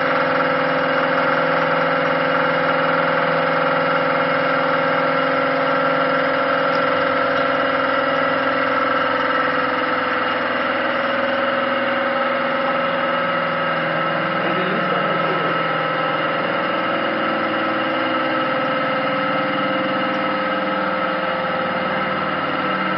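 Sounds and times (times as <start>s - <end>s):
hydraulic machine hum: 0.0s - 22.9s.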